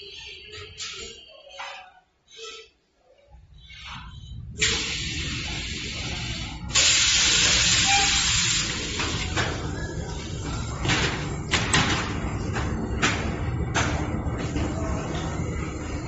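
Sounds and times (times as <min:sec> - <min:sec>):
loud machine hiss: 0:04.6 - 0:09.4.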